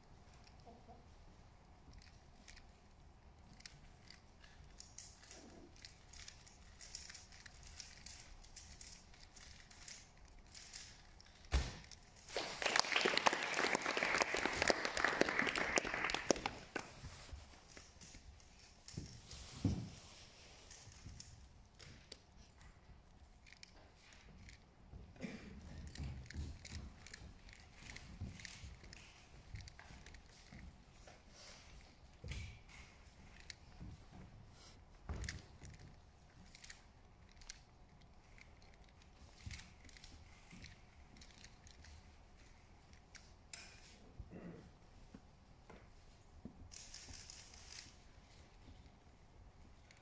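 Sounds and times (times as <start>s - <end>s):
audience applause: 12.3s - 17.0s.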